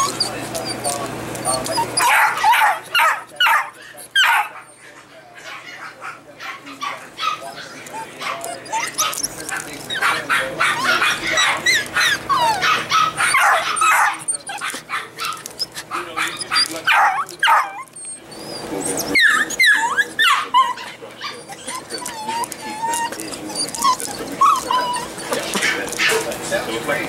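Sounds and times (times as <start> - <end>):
puppy wavering whine: 0.0 - 5.0, 6.7 - 27.0
puppies yipping and barking: 0.0 - 27.0.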